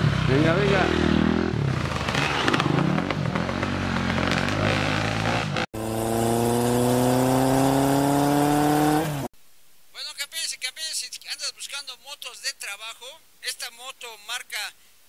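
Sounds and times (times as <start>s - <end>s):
dirt bike engines revving: 0.0s - 9.3s.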